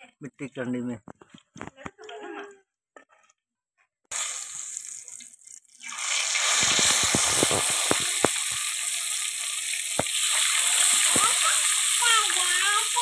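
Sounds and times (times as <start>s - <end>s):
fish sizzling in hot oil: 4.1s - 13.0s.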